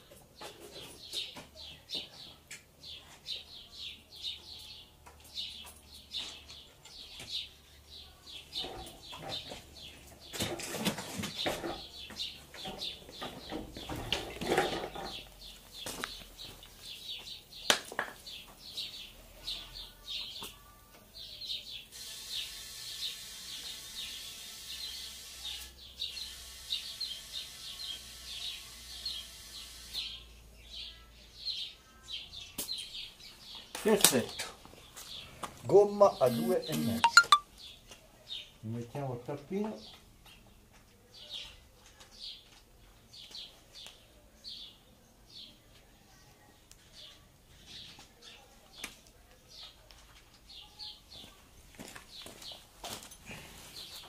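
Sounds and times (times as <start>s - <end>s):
birds chirping: 33.2s - 37.8s.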